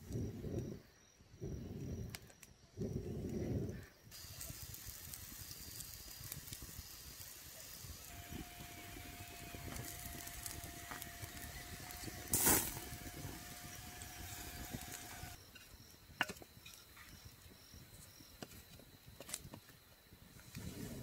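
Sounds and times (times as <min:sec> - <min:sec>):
insects chirping: 0:00.0 - 0:21.0
campfire crackling: 0:01.7 - 0:15.4
loud hiss: 0:04.1 - 0:15.4
meat sizzling: 0:04.1 - 0:15.4.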